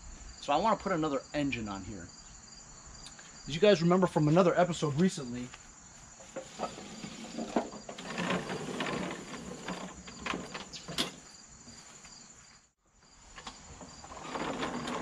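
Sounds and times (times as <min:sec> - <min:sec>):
crickets chirping: 0:00.0 - 0:15.0
footsteps on grass: 0:04.1 - 0:06.4, 0:11.2 - 0:13.4
push mower wheeled across lawn: 0:06.2 - 0:11.4, 0:13.2 - 0:15.0
clicks and rattles: 0:06.4 - 0:11.2.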